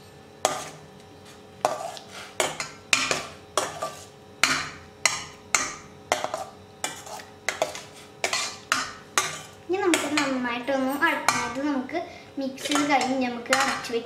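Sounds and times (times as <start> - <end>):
ladle scraping and knocking a pan: 6.1 - 10.3.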